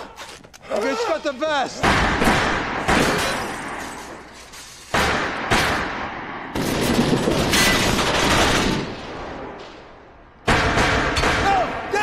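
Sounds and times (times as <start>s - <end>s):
rapid gunfire volley: 1.8s - 3.8s, 4.9s - 9.4s, 10.4s - 12.0s.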